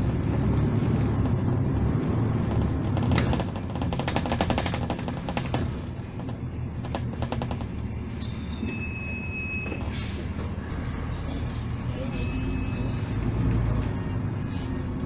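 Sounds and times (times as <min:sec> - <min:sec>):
bus diesel engine humming: 0:00.0 - 0:15.0
fast rattle of clicks: 0:02.5 - 0:07.8.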